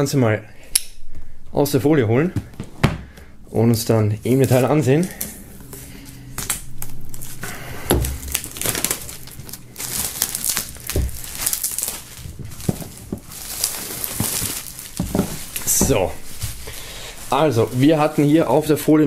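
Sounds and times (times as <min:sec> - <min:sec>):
plastic wrap crinkling: 0:04.2 - 0:18.9
box bumps: 0:12.2 - 0:16.6.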